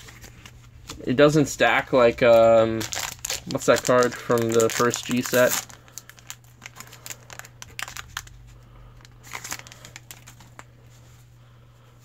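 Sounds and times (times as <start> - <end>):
foil wrapper crinkling: 1.9 - 10.8.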